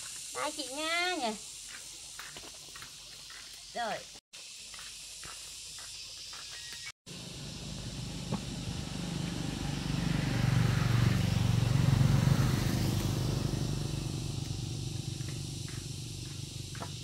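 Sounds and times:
vehicle engine passing by: 7.1s - 17.0s.

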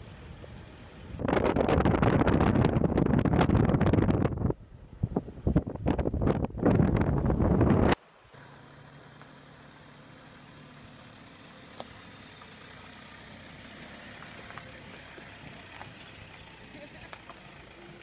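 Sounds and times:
engine idling: 8.2s - 18.0s.

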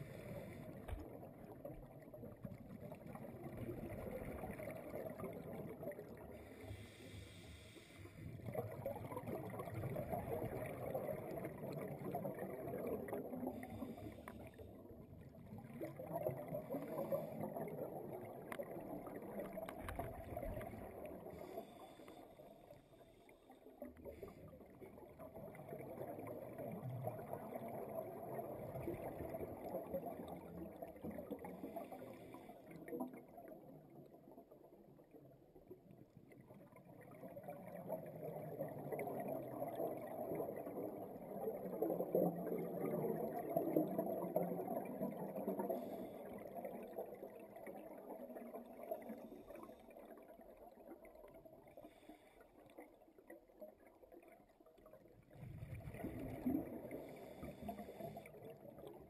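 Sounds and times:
regulator inhale hiss: 0.0s - 1.0s, 6.4s - 8.4s, 13.7s - 14.6s, 21.3s - 23.5s, 57.0s - 58.4s
exhaled bubbles rumbling: 0.0s - 6.6s, 8.3s - 22.0s, 23.9s - 35.9s, 36.5s - 52.1s, 53.6s - 59.0s.

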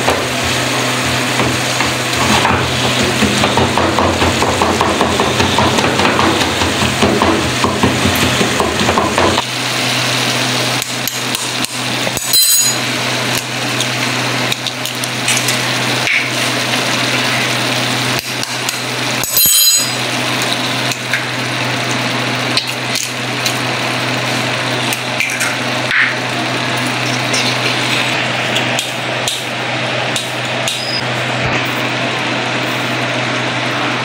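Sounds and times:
food sizzling in frying pan: 0.2s - 30.6s.

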